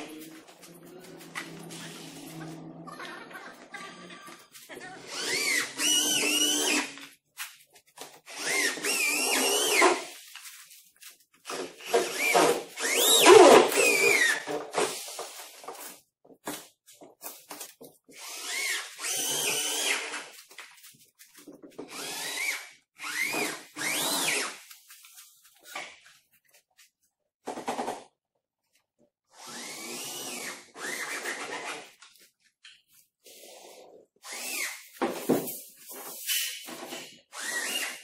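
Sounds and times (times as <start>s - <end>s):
cordless drill driving screws: 5.0s - 7.0s, 8.3s - 10.1s, 11.5s - 14.5s, 18.2s - 20.3s, 21.9s - 24.6s, 29.3s - 31.8s, 34.2s - 34.9s, 37.3s - 38.0s.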